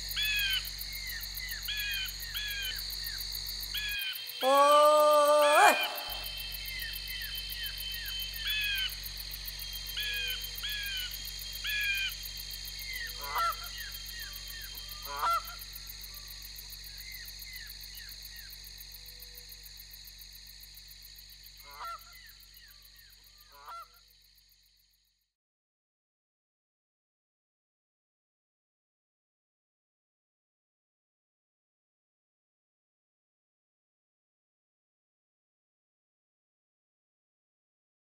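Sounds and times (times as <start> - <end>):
crickets chorus: 0.0 - 25.2.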